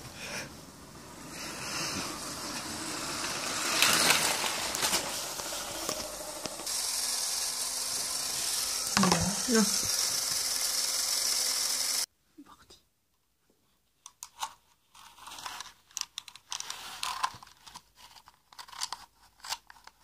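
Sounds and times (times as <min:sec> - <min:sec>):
steady hiss: 0:00.0 - 0:12.1
toy train rattling on track: 0:00.9 - 0:12.1.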